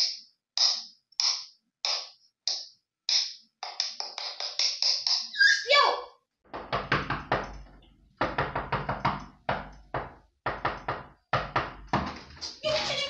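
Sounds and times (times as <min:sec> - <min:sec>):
knocking on wooden door: 0:06.5 - 0:07.5, 0:08.2 - 0:12.3.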